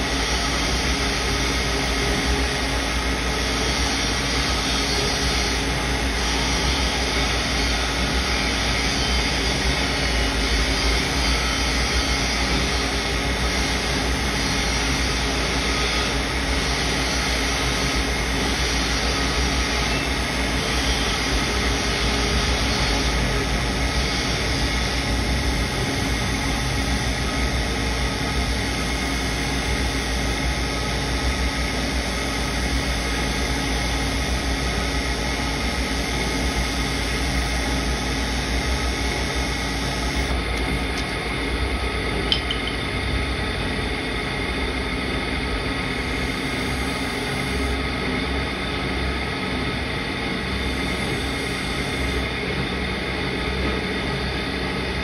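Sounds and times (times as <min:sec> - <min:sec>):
knife grinding on sharpening wheel: 0:42.3 - 0:42.8.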